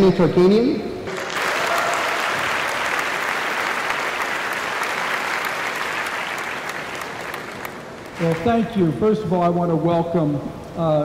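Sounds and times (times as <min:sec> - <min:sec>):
audience applauding: 0:01.1 - 0:09.0.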